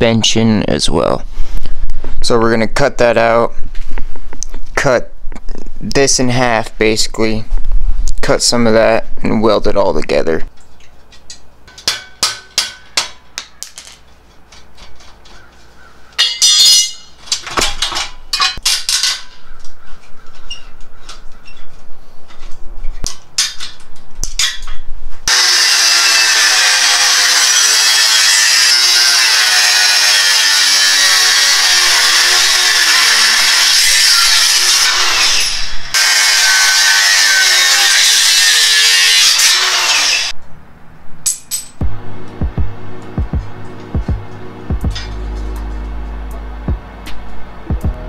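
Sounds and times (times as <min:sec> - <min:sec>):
hand tools clinking: 0:16.2 - 0:19.5, 0:41.2 - 0:41.8
angle grinder cutting metal: 0:25.2 - 0:40.4.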